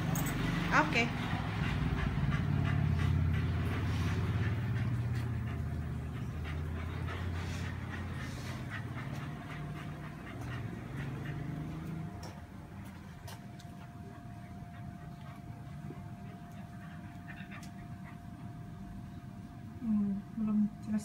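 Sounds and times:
dog panting: 0:00.0 - 0:20.3
low steady rumble: 0:00.0 - 0:21.0.

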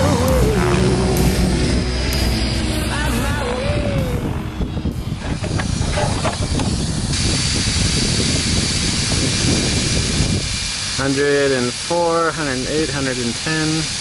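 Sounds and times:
wind buffeting microphone: 0:00.0 - 0:11.5
bright steady hiss: 0:06.4 - 0:14.0.

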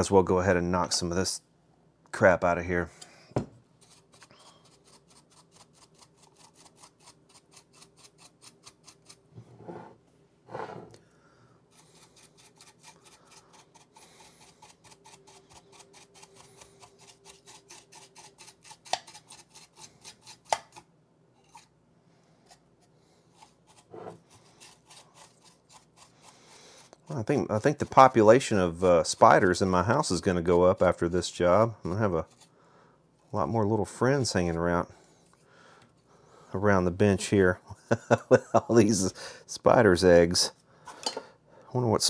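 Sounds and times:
paintbrush scrubbing metal chassis: 0:23.3 - 0:32.5.

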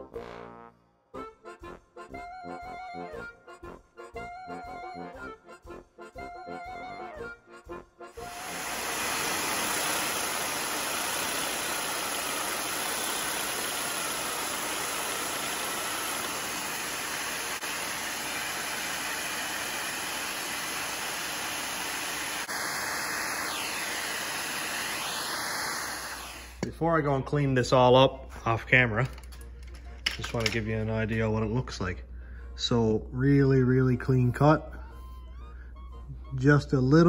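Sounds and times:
reciprocating saw cutting metal: 0:08.2 - 0:26.6
shop vacuum running: 0:08.2 - 0:27.9.

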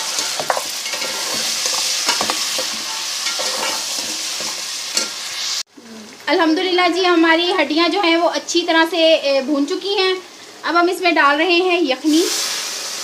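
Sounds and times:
meat sizzling in oil: 0:00.0 - 0:05.7, 0:12.0 - 0:13.0.

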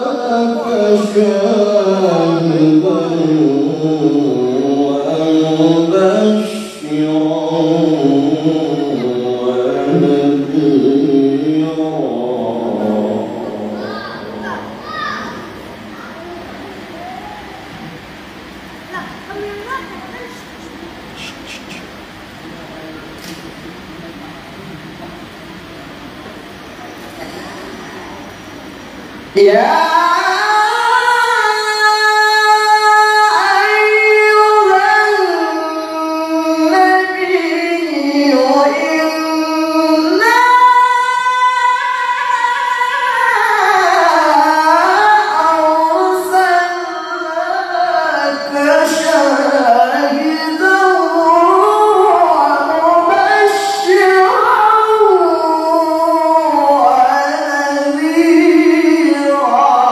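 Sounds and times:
man chanting melodic recitation: 0:00.0 - 0:15.6, 0:29.3 - 0:59.9.

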